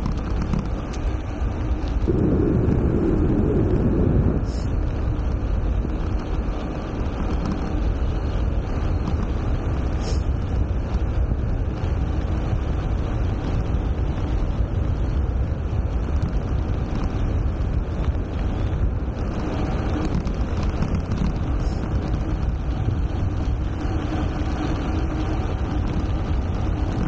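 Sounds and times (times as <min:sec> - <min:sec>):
wind buffeting microphone: 0:00.0 - 0:27.0.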